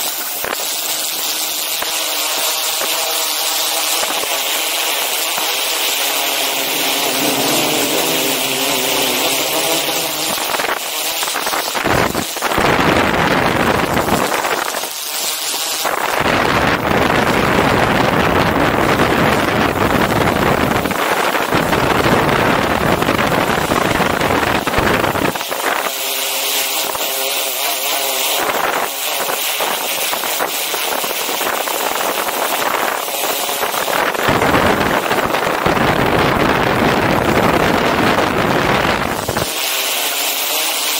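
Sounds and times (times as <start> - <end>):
quadcopter rotors humming: 0.0 - 40.9
wind buffeting microphone: 5.2 - 14.8, 16.0 - 26.0, 28.4 - 39.6.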